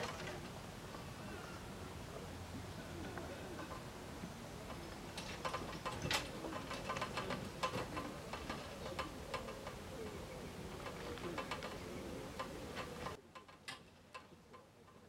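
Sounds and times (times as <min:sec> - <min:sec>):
rigging clicking and ticking: 0:04.6 - 0:15.0.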